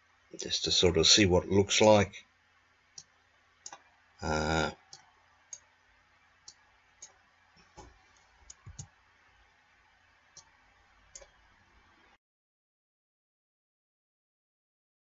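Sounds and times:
computer mouse clicks: 3.0s - 3.9s, 4.9s - 5.7s, 6.4s - 8.9s, 10.4s - 11.4s
person vocal sound: 4.2s - 4.7s.

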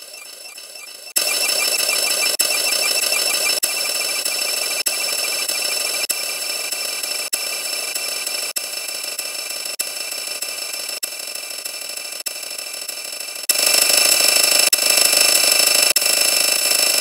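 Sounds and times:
distorted buzzing drone: 0.0s - 10.2s.

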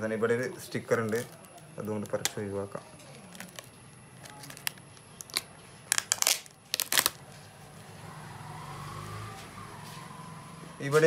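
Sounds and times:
plastic film crinkling: 0.7s - 7.4s.

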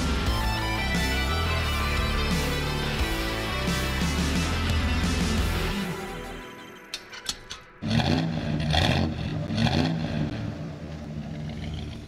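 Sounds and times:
car engine revving: 7.8s - 12.0s.

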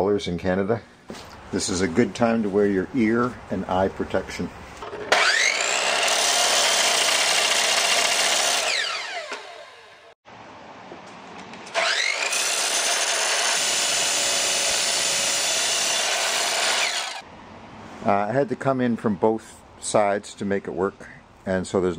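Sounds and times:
cutoff wheel grinding steel: 4.8s - 10.1s, 11.7s - 17.2s
saw motor whining: 5.0s - 10.1s, 11.7s - 17.2s.

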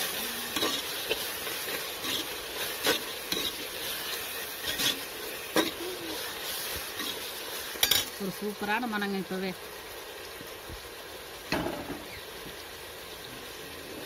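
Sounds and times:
onions sizzling in oil: 0.0s - 14.0s
ladle scraping a pot: 0.5s - 5.8s.

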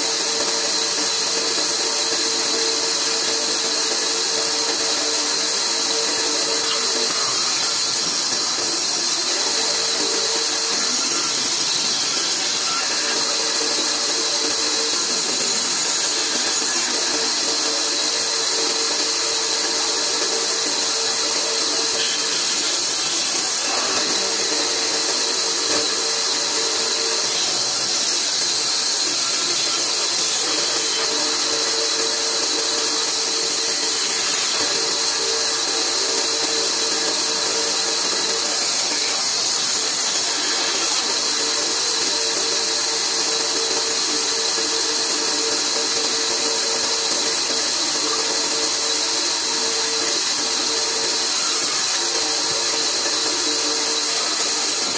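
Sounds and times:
band saw running: 0.0s - 54.9s.

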